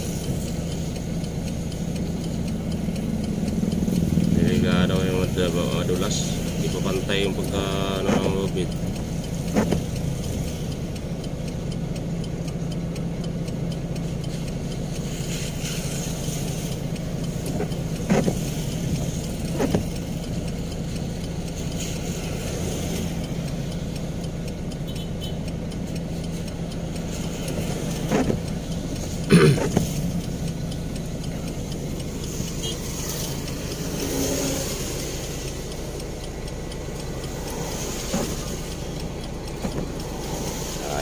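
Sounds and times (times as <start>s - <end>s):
heavy diesel engine idling: 0.0s - 19.5s
vehicles passing: 0.0s - 41.0s.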